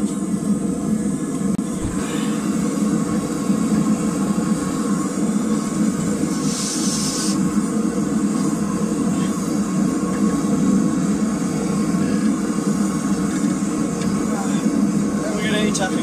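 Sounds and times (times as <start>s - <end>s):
forge roaring: 0.0s - 16.0s
brief hiss: 6.3s - 7.5s.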